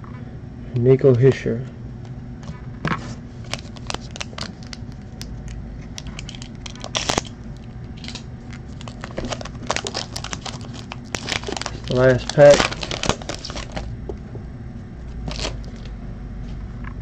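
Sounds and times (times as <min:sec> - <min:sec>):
foil wrapper crinkling: 0:03.4 - 0:05.3, 0:05.9 - 0:13.9, 0:15.2 - 0:15.9.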